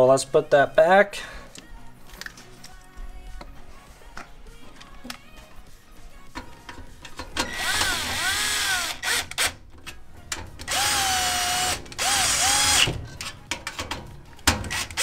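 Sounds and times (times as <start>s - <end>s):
cordless drill driving screws: 7.4s - 9.6s, 10.7s - 13.0s, 14.7s - 15.0s.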